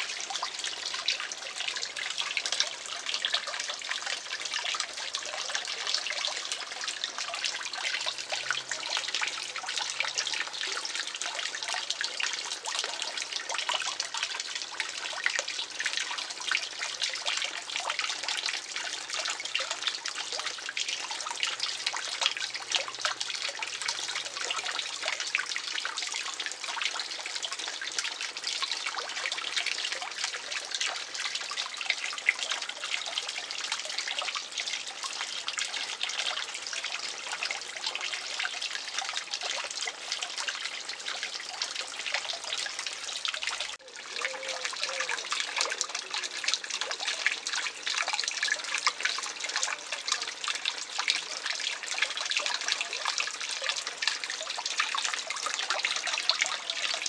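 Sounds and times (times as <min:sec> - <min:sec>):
fountain splashing into pond: 0:00.0 - 0:57.0.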